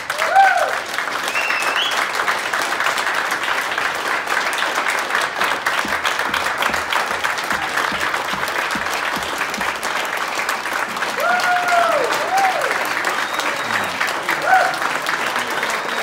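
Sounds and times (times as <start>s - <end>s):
crowd applauding: 0.0s - 16.0s.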